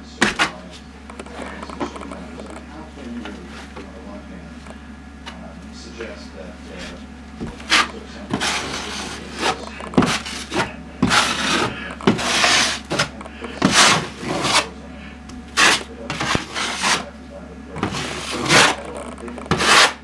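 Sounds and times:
taping knife scraping drywall: 7.6s - 14.8s, 15.6s - 17.1s, 17.8s - 20.0s.

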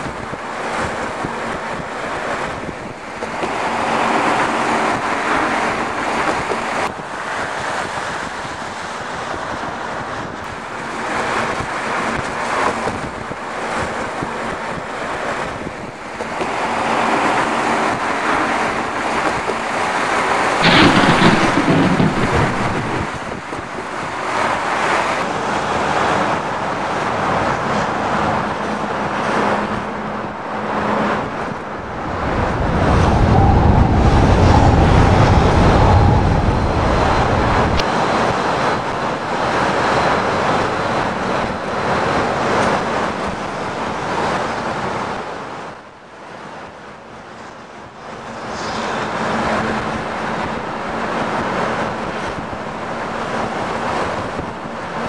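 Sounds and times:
wind gusting: 0.0s - 47.2s, 47.8s - 55.0s
low rumble: 20.6s - 23.9s
loud crash: 20.6s - 24.1s.

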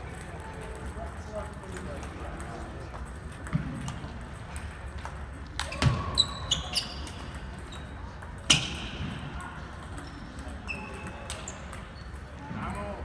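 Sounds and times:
ball bouncing on hard surface: 2.3s - 6.4s.

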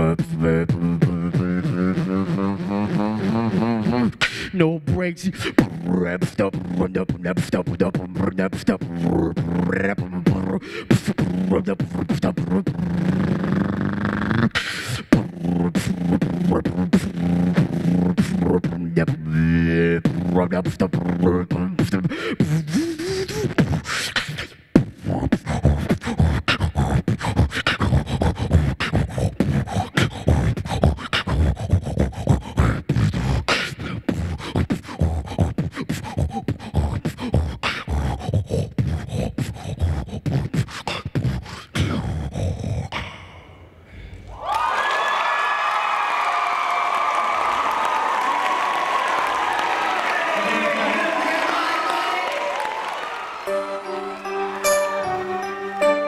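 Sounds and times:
beatboxing into microphone: 0.0s - 44.3s.

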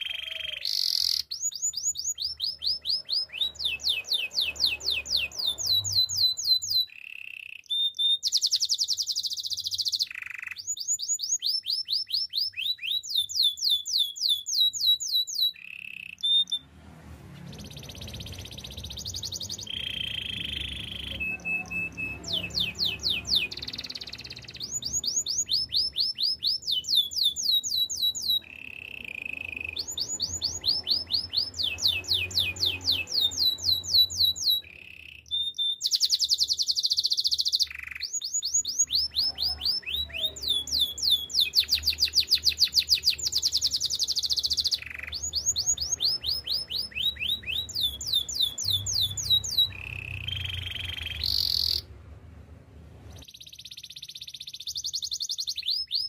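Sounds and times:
canary singing: 0.0s - 52.2s, 53.0s - 56.0s.

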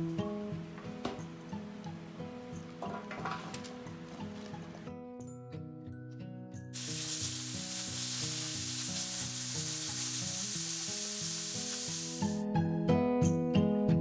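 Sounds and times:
background music with melody: 0.0s - 9.5s, 11.0s - 14.0s
bacon sizzling in a pan: 6.8s - 12.4s.

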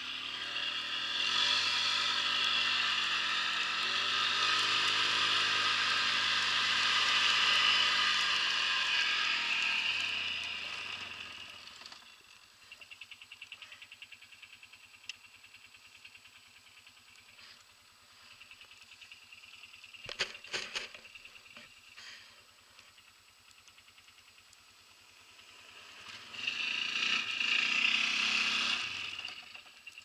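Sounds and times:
atv engine idling: 0.0s - 30.0s.

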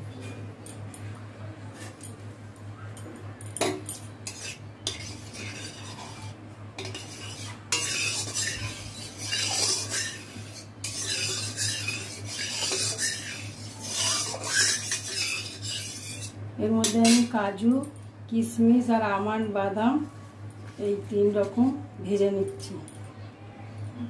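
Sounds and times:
steady low hum: 0.0s - 24.0s
metal spatula scraping a wok: 4.2s - 17.3s.

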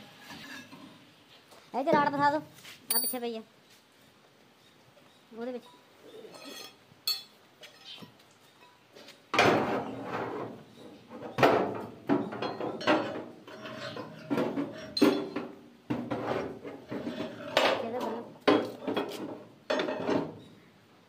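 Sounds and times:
metal tools clanking: 2.9s - 3.2s.

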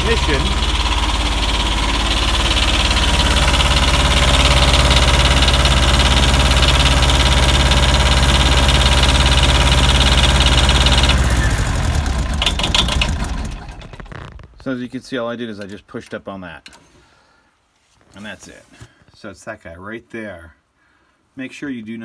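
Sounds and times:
diesel generator engine running: 0.0s - 14.6s.

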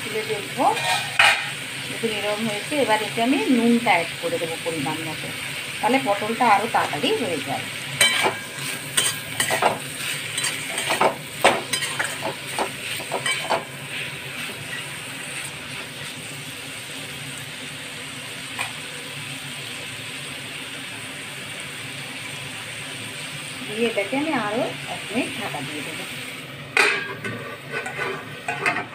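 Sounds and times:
oil sizzling: 0.0s - 28.9s
spatula scraping a pan: 0.6s - 1.6s, 8.0s - 16.1s, 26.8s - 28.9s.

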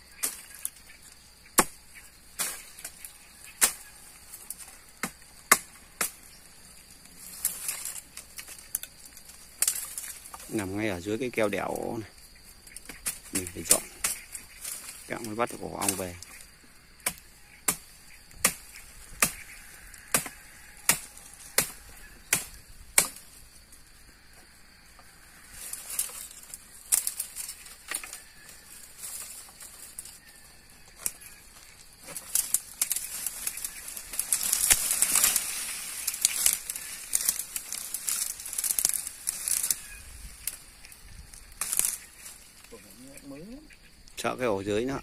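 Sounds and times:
blade chopping wood: 1.6s - 1.8s
dry branches dragged rustling: 2.2s - 16.6s, 18.0s - 42.8s.

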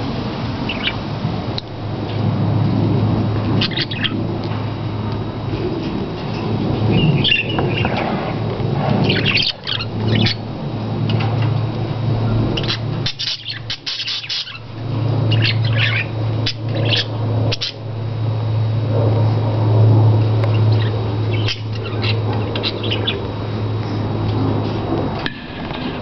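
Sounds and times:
steady low hum: 0.0s - 26.0s
budgerigars chirping: 0.7s - 1.0s, 3.6s - 4.2s, 6.9s - 8.0s, 9.0s - 10.4s, 12.6s - 14.7s, 15.3s - 17.8s, 20.6s - 23.2s.

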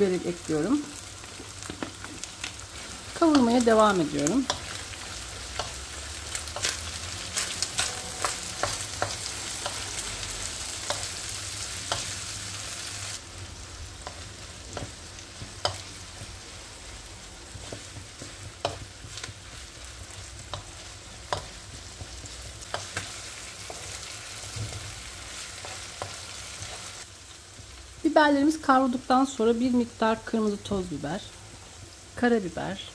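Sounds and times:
food sizzling in hot oil: 0.0s - 32.9s.

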